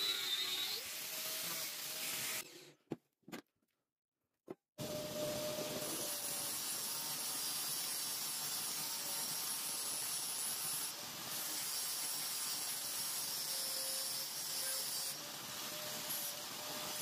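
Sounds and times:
steel grinding hiss: 5.8s - 17.0s.

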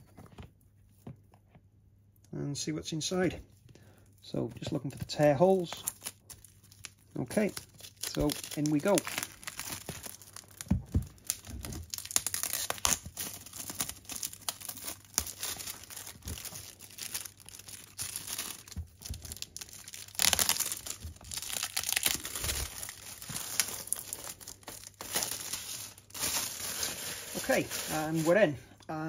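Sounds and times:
packaging rustling and crinkling: 4.4s - 28.6s.

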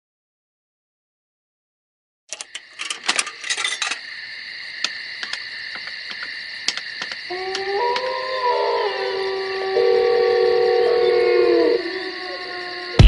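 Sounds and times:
bicycle clicking and rattling: 2.3s - 4.0s.

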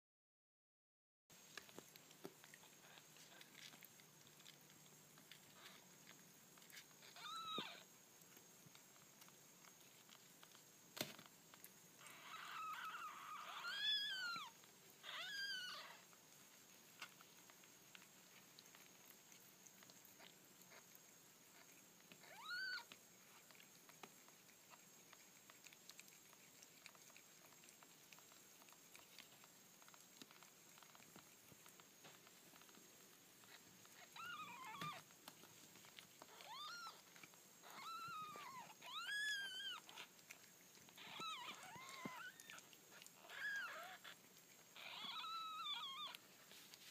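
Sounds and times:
kittens mewing: 7.0s - 7.9s, 22.2s - 22.9s, 33.5s - 35.1s, 36.2s - 40.2s, 40.9s - 46.2s.

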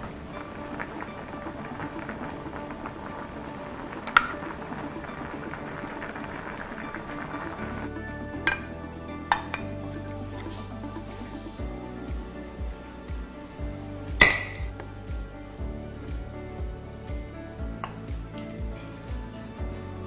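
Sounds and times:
stew bubbling in a pot: 0.0s - 10.6s
soft background music: 0.0s - 20.0s.

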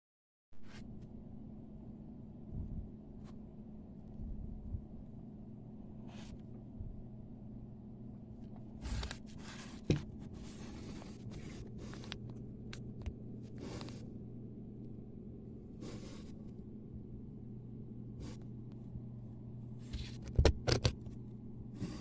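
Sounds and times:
steady low hum: 0.6s - 22.0s.

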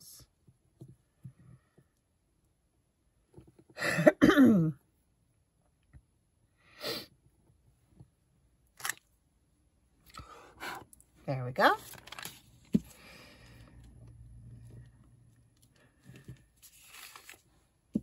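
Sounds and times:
woman coughing: 3.8s - 4.8s
soft breath: 12.8s - 14.9s.

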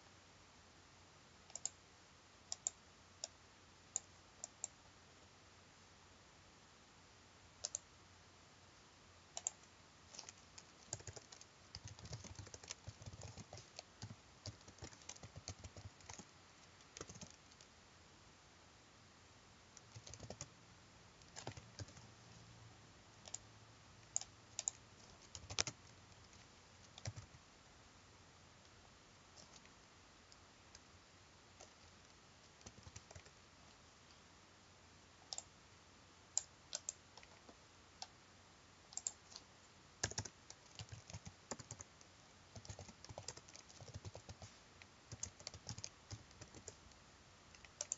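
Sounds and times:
typing on a computer keyboard: 1.5s - 1.8s, 2.5s - 3.4s, 7.6s - 7.9s, 9.4s - 17.7s, 19.8s - 20.5s, 21.2s - 22.1s, 24.1s - 27.4s, 32.6s - 33.4s, 36.4s - 37.4s, 38.9s - 39.4s, 40.0s - 44.5s, 45.1s - 46.9s, 47.5s - 47.9s.

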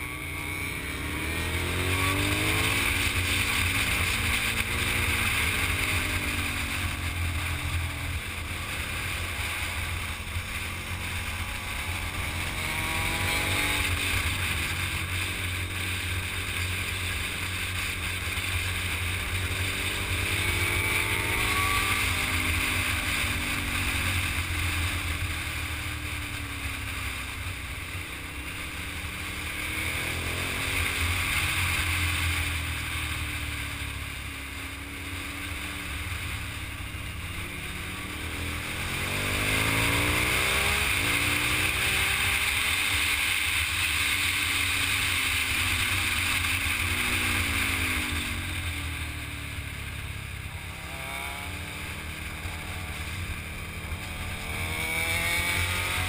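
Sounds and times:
motorcycle engine revving: 0.0s - 56.0s
wind rush and road noise: 0.0s - 56.0s.

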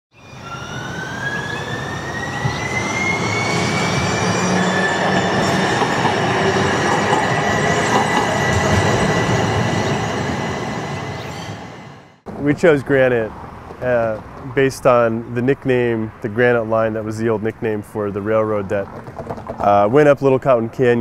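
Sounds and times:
streetcar whine: 0.1s - 19.9s
streetcar rumbling rattle: 0.8s - 15.4s.

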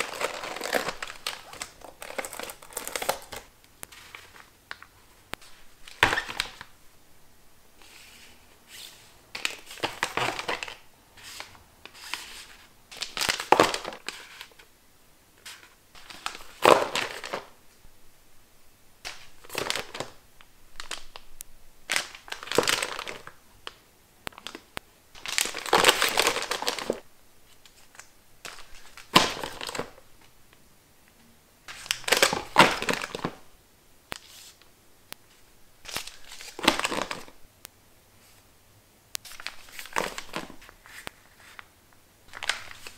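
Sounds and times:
sachets crinkling: 0.0s - 6.7s, 9.4s - 14.6s, 20.8s - 21.3s, 21.9s - 24.6s, 25.2s - 27.0s, 27.6s - 30.0s, 35.8s - 37.4s, 39.2s - 41.7s, 42.3s - 42.9s.

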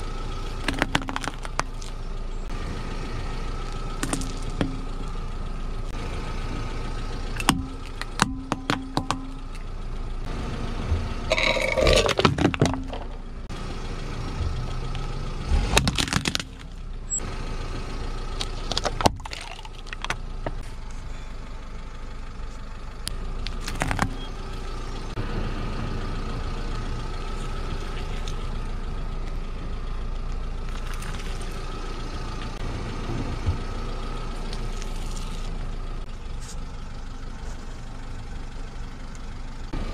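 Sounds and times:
car engine idling: 0.0s - 39.9s
tyre crushing plastic dice: 0.6s - 2.0s, 4.0s - 4.8s, 11.3s - 13.2s, 15.8s - 16.7s.

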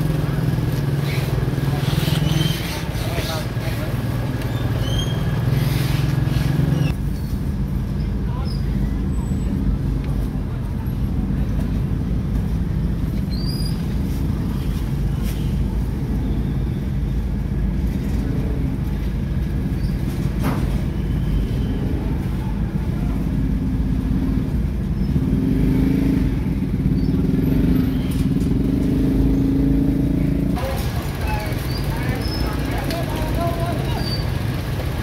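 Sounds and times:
motorbikes passing: 0.0s - 7.0s, 17.5s - 35.0s
low rumble of street traffic: 0.0s - 35.0s
nearby engine: 25.2s - 35.0s.

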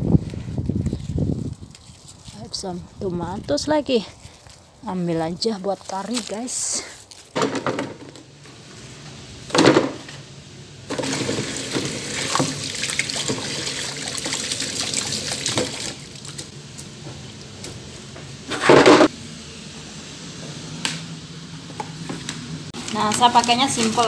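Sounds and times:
tap water pouring over vegetables: 10.9s - 16.5s.

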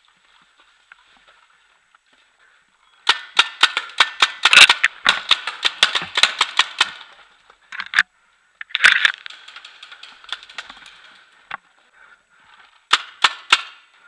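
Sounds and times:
paintball markers firing: 3.0s - 7.2s, 12.9s - 13.9s.

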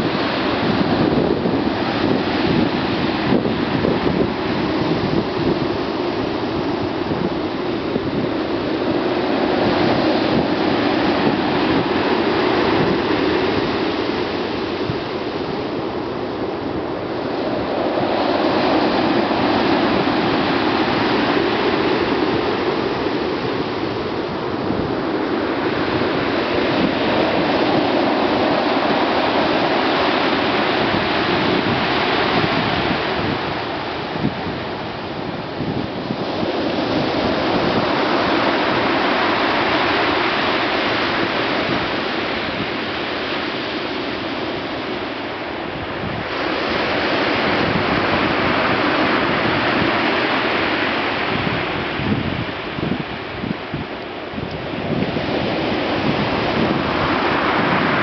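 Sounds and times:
waves crashing on pebbles: 17.1s - 53.1s, 54.8s - 58.0s.

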